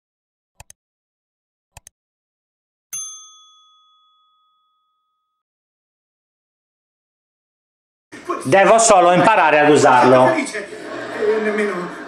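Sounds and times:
bell ding: 2.9 - 5.4.

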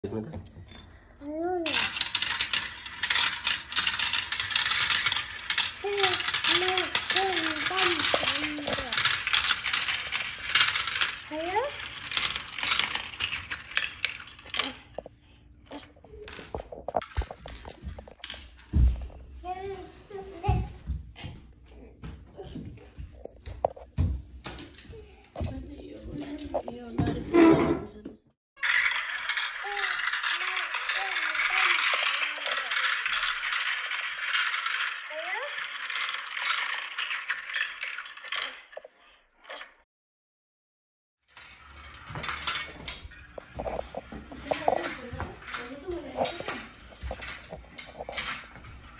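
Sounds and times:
marble run pieces clattering: 0.7 - 15.1, 15.7 - 18.5, 28.6 - 39.8, 41.3 - 48.9.

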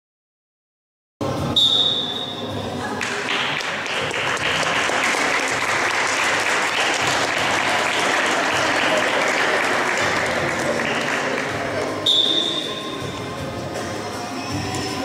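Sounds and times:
people clapping: 3.0 - 12.6.

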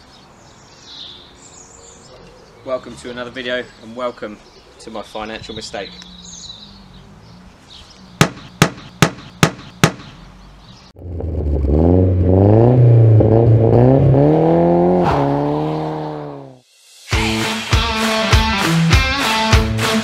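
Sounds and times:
car engine revving: 5.5 - 16.6.

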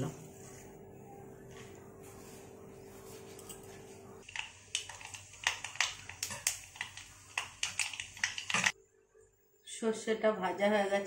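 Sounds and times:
seeds popping in hot oil: 4.2 - 8.8.

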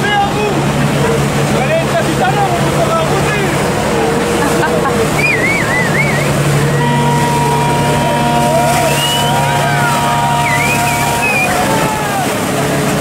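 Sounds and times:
boat engine running: 0.0 - 13.0
water rushing from wake: 0.0 - 13.0
wavering voices: 3.8 - 12.5.

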